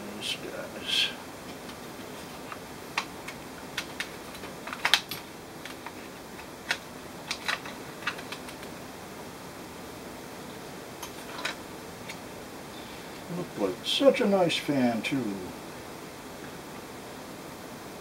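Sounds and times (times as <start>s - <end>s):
clicks of hands handling laptop parts: 1.4s - 8.7s.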